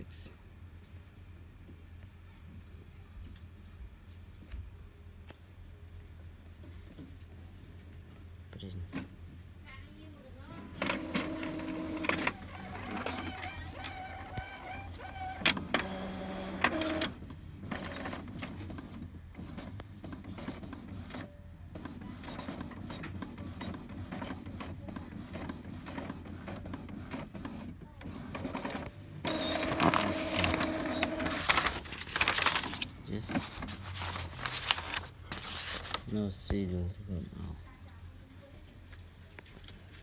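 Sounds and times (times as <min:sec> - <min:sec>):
printer mechanism whirring: 0:10.6 - 0:35.6
printer motor whine: 0:10.8 - 0:18.1, 0:28.5 - 0:31.8.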